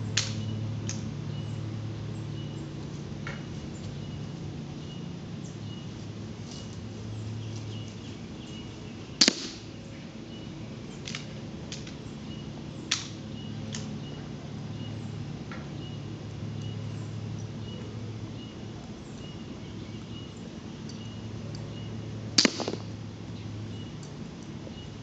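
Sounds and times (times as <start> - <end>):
steady low hum: 0.0 - 25.0
air rifle firing crack: 9.2 - 9.8, 22.4 - 23.0.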